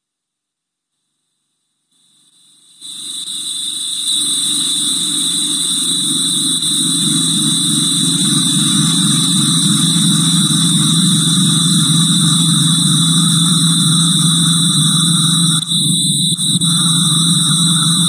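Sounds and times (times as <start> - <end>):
high steady tones: 4.1 - 18.0
dense buzzing drone: 4.7 - 18.0.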